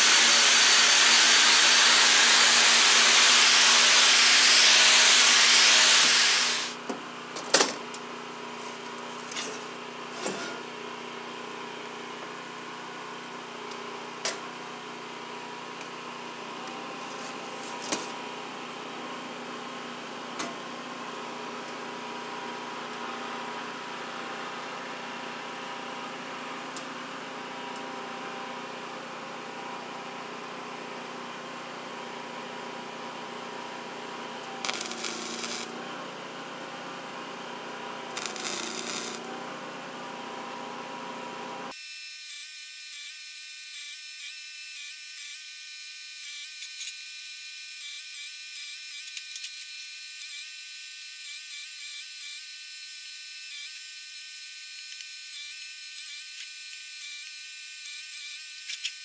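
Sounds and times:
thin high buzz: 0:34.6 - 0:35.8, 0:38.1 - 0:39.3, 0:41.7 - 0:59.0
welding crackle: 0:34.6 - 0:35.8, 0:38.1 - 0:39.3.

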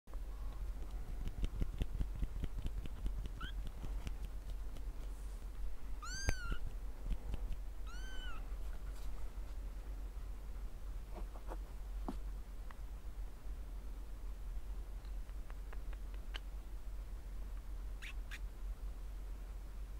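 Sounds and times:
kittens mewing: 0:06.0 - 0:06.6, 0:07.9 - 0:08.4.

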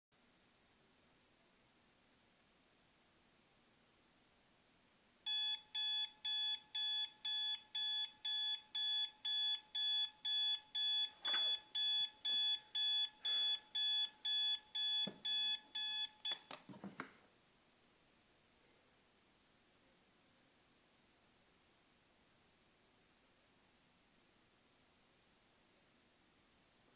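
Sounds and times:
alarm clock beeping: 0:05.3 - 0:16.5.

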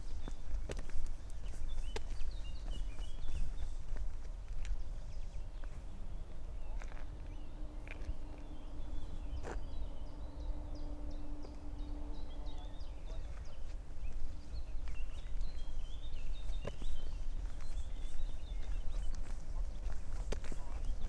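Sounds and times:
footsteps crunching on path: 0:00.0 - 0:21.0
songbirds chirping: 0:00.0 - 0:21.0
low rumble: 0:05.6 - 0:16.2.

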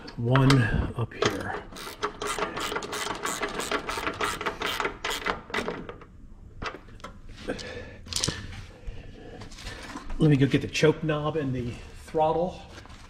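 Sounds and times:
ratchet wrench clicking: 0:01.3 - 0:05.3.

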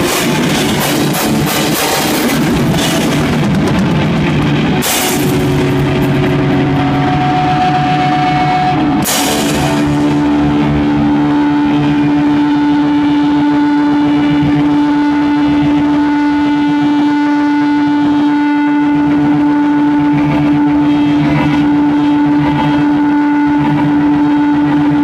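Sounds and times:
cymbal crash: 0:00.0 - 0:16.3
drums: 0:00.0 - 0:17.3, 0:18.0 - 0:25.0
loud distorted electric guitar: 0:00.0 - 0:25.0.

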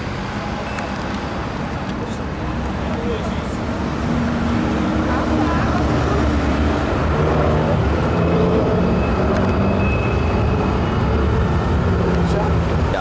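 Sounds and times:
car engines rumbling: 0:00.0 - 0:13.0.

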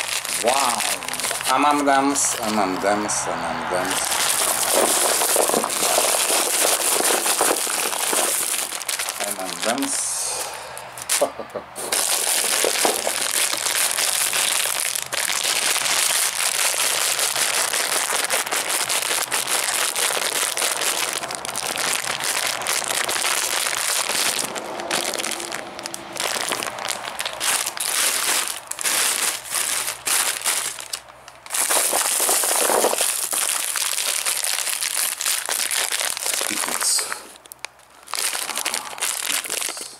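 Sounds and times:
plastic wrappers crinkling: 0:00.0 - 0:02.8, 0:03.8 - 0:39.9.

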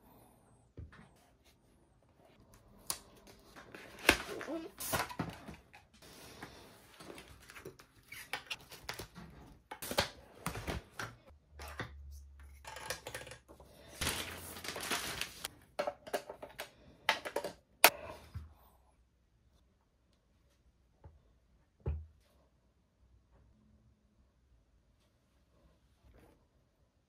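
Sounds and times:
cardboard and paper rustling: 0:03.2 - 0:11.8, 0:13.8 - 0:15.5.

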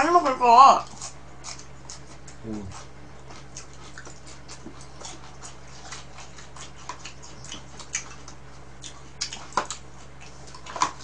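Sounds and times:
steady low hum: 0:00.0 - 0:11.0
chewing and lip-smacking: 0:00.8 - 0:11.0.

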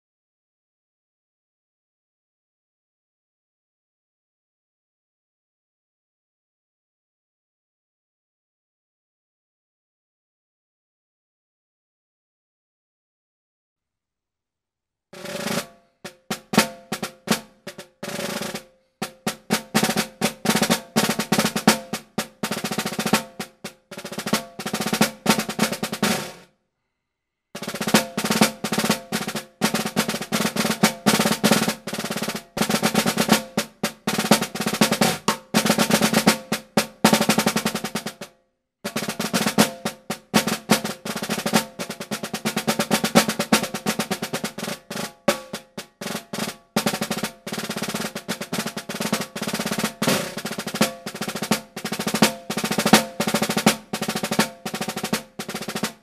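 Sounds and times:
snare drum rolls: 0:15.2 - 0:26.4, 0:27.6 - 0:38.3, 0:38.9 - 0:56.0.

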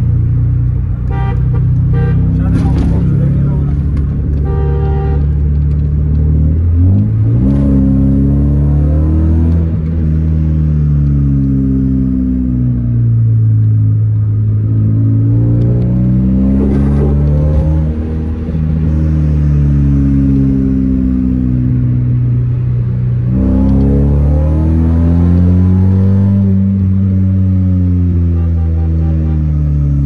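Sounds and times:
car engine accelerating: 0:00.0 - 0:30.0.

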